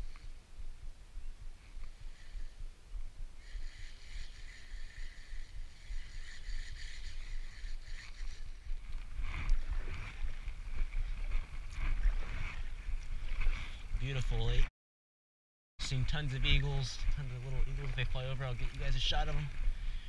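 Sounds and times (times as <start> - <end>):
wind rumbling on microphone: 0.0 - 14.7, 15.8 - 20.0
fishing reel whirring: 1.8 - 2.6, 3.4 - 12.7.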